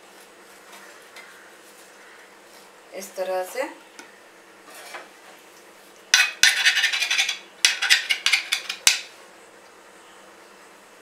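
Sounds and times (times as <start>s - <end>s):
metal blade scraping on steel plate: 6.2s - 8.9s.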